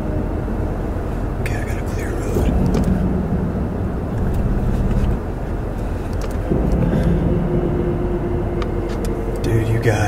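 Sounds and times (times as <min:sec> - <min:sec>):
steady hum: 0:00.0 - 0:10.0
storm wind rumbling: 0:00.0 - 0:10.0
wind buffeting microphone: 0:02.2 - 0:10.0.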